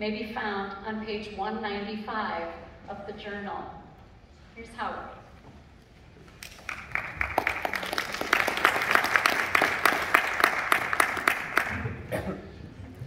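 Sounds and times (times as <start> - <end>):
audience applauding: 6.3 - 12.2.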